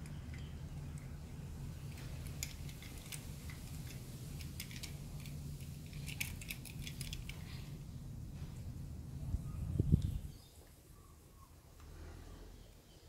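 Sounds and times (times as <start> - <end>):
toy car clicking: 1.9 - 7.4.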